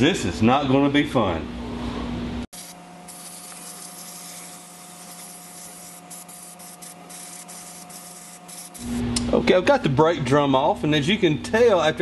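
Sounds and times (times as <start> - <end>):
aerosol can spraying: 2.5 - 9.0.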